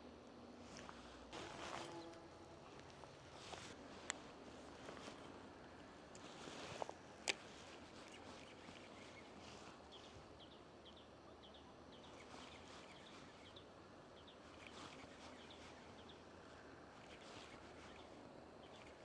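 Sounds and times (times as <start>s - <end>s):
faint steady hiss: 0.0s - 19.0s
insects chirping: 3.8s - 19.0s.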